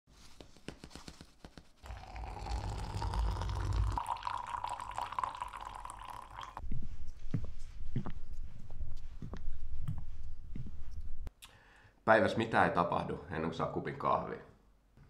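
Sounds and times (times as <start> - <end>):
coffee pouring into mug: 1.8 - 6.6.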